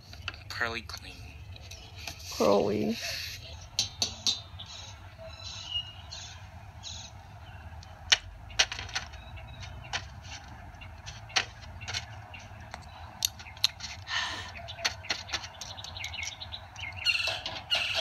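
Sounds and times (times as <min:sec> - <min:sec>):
steady low hum: 0:00.0 - 0:17.0
sharp irregular clicks: 0:07.7 - 0:17.6.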